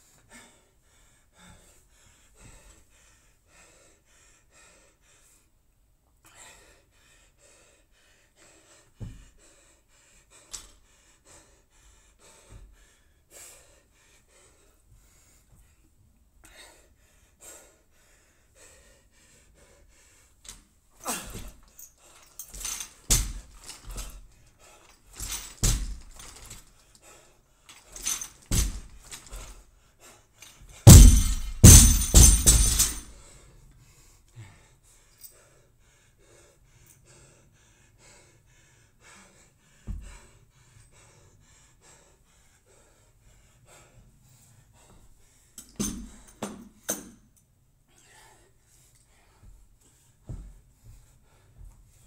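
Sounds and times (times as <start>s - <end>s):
barbell plates dropping on rubber floor: 30.9s - 33.0s.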